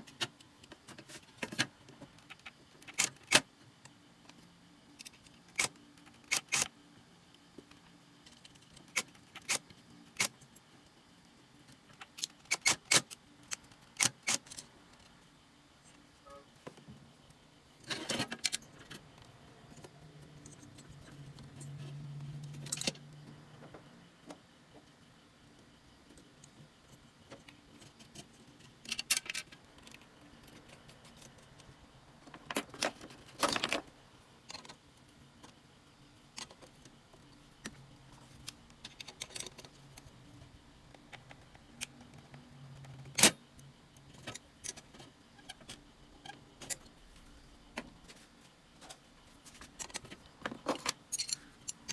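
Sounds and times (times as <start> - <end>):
metallic clicks and clatter: 49.7 - 51.9.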